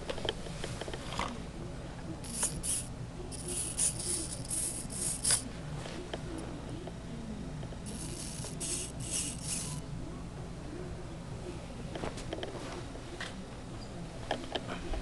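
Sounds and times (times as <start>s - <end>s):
rc helicopter rattling bursts: 2.2s - 5.4s, 7.8s - 9.8s.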